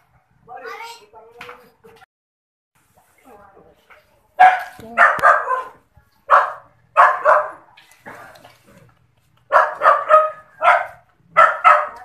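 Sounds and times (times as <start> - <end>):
dog barking: 4.4 - 7.7, 9.5 - 12.0.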